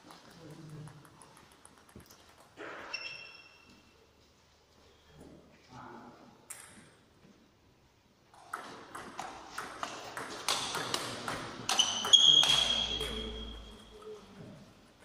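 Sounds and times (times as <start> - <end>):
table tennis ball clicking: 0.0 - 2.6.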